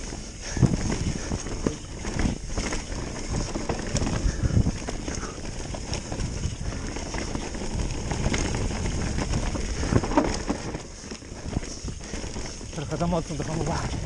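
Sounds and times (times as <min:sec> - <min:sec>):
bike rattling and knocking: 0:00.0 - 0:14.0
bike tyres rumbling on dirt: 0:00.0 - 0:14.0
wind on the microphone: 0:00.0 - 0:14.0.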